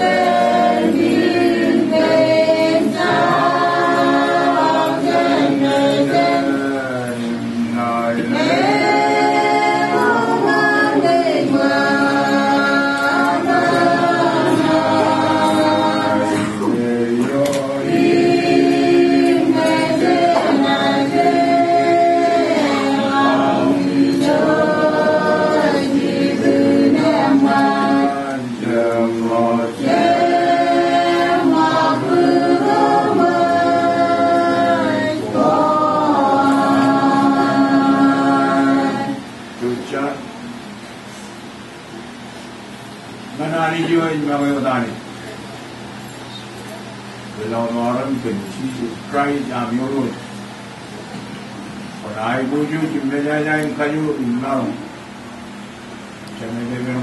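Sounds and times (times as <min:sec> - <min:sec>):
group singing a hymn a cappella: 0:00.0 - 0:44.3.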